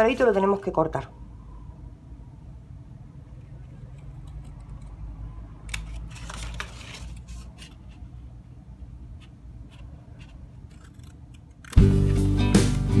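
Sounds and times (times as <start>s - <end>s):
paper rustling: 5.7s - 8.2s
scissors snipping paper: 9.2s - 11.9s.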